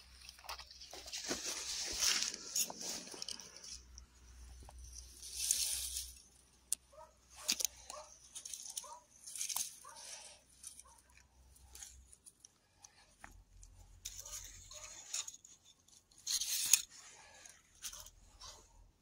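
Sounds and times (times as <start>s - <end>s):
hands rustling pine needles: 0.0s - 18.9s
twigs snapping: 4.7s - 18.1s.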